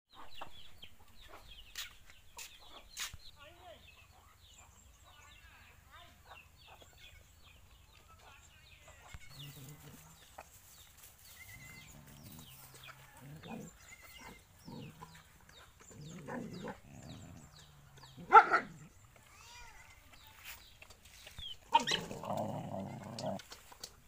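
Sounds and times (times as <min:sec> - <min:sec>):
puppies chirping: 0:09.1 - 0:23.9.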